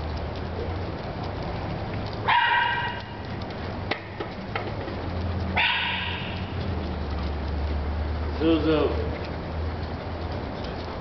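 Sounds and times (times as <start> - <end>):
faint ticks: 0.0 - 8.3, 9.1 - 11.0
dog barking: 2.2 - 3.2, 5.6 - 6.5.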